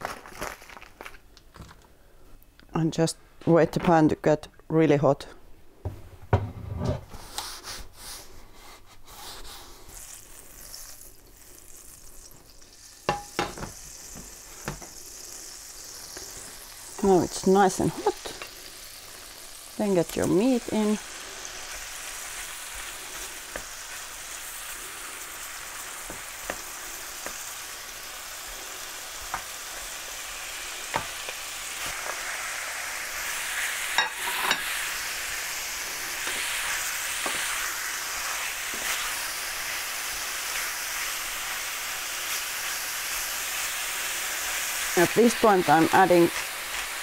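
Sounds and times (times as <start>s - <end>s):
meat sizzling in a frying pan: 9.3s - 47.0s
wooden spatula knocking pan: 13.1s - 13.8s.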